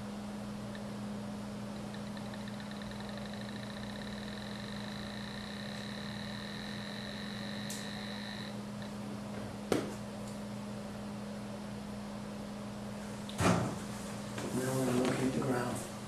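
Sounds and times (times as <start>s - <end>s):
low hum: 0.0s - 9.2s
high electronic beeping tone: 2.0s - 8.5s.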